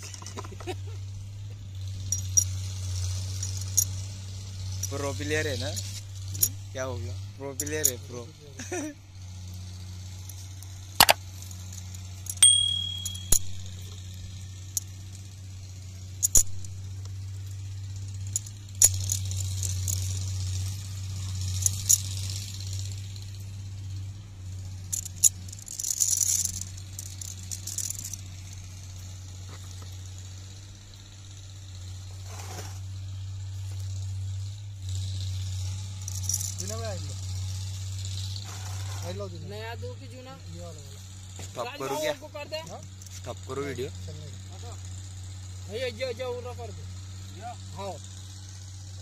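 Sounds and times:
metal parts clinking and rattling: 0.0s - 0.9s, 1.8s - 8.9s, 10.1s - 15.3s, 16.2s - 16.8s, 17.4s - 20.4s, 21.2s - 23.0s, 24.8s - 30.0s, 35.0s - 39.3s
steady low hum: 0.0s - 38.2s.

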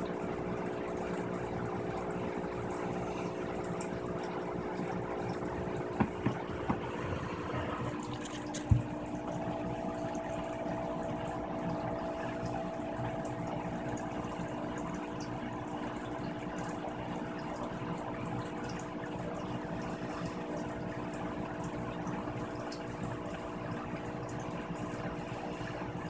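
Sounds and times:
pump or motor humming: 0.0s - 26.0s
short knocks: 6.0s - 6.9s.

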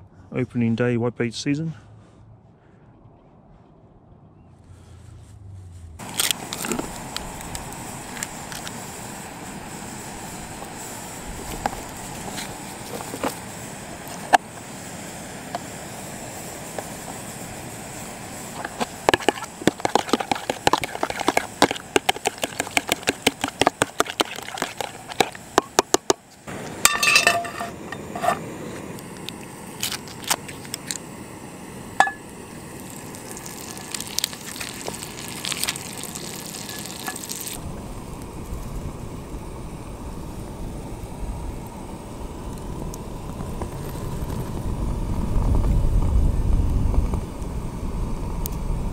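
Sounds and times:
low steady rumble: 0.0s - 29.8s, 36.8s - 48.9s
utensil beating in plastic container: 18.6s - 26.2s
knocks and clinks: 26.8s - 28.4s.

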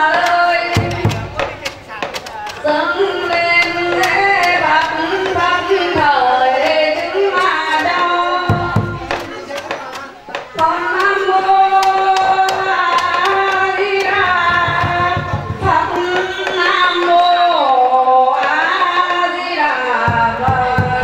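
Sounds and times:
sharp percussion clicks: 0.0s - 18.6s.

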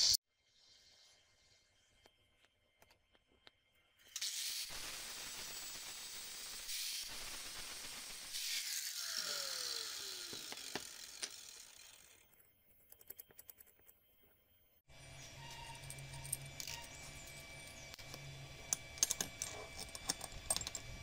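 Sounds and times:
angle grinder grinding steel: 4.1s - 12.4s
motor winding down whine: 7.0s - 12.4s.

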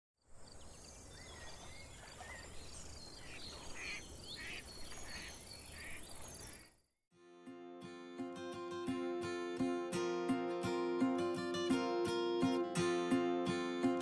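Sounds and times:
birds chirping and calling: 0.8s - 6.8s.

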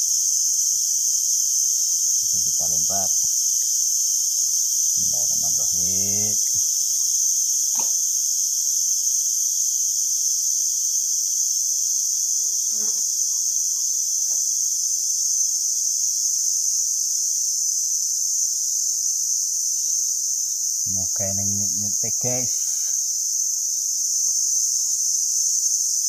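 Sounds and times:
forest insects shrilling: 0.2s - 9.0s, 11.3s - 14.9s, 20.7s - 23.7s.

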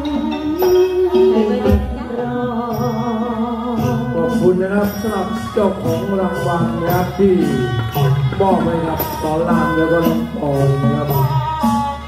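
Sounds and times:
live band: 0.0s - 12.0s
singer holding long notes: 0.0s - 12.0s
low drum beats: 3.7s - 11.4s.

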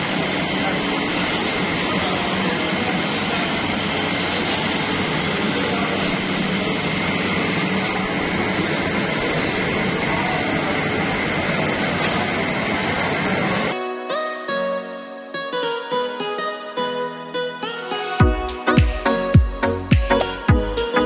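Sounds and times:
constant high whine: 0.0s - 13.7s
factory machinery noise: 0.0s - 13.8s.

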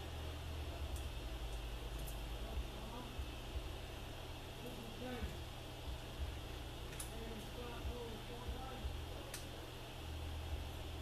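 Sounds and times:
low hum and faint hiss: 0.0s - 11.0s
light click of small parts: 0.9s - 2.2s, 6.9s - 7.2s, 9.3s - 9.5s.

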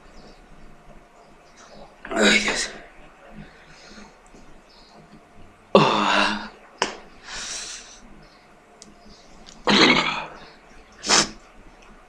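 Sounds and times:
hissing breath through nose: 7.2s - 8.1s, 10.4s - 11.4s
man coughing and snorting: 9.6s - 10.4s.

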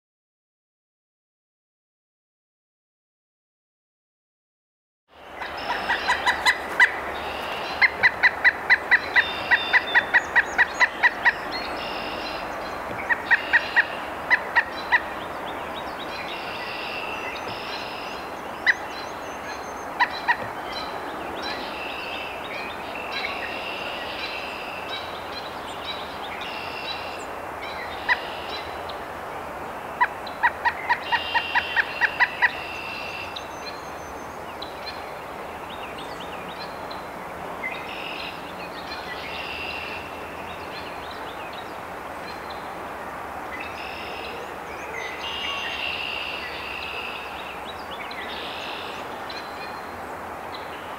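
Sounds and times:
birds singing: 5.2s - 29.0s, 29.7s - 42.7s, 43.5s - 50.9s
woodpecker calling: 5.4s - 15.5s, 16.2s - 22.4s, 30.0s - 33.7s.

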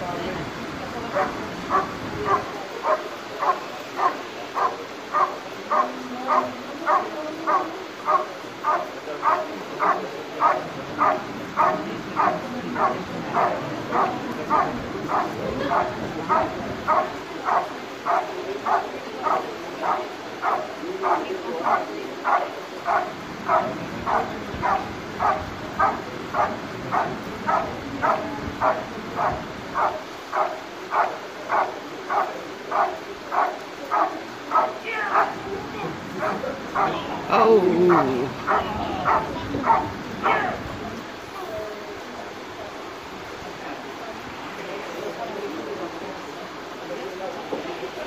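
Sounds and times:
dog barking: 1.2s - 35.4s, 36.2s - 37.0s, 37.9s - 40.6s.

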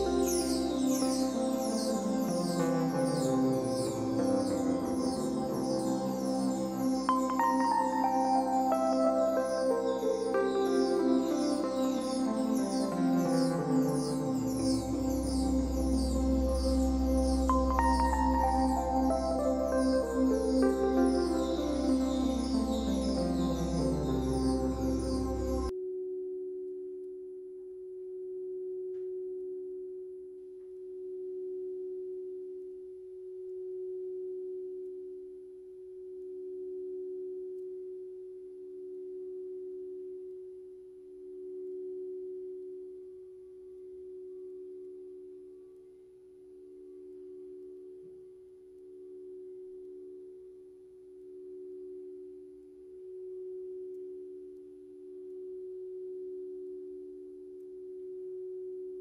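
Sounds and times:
synthesized pure tones: 0.0s - 25.7s.

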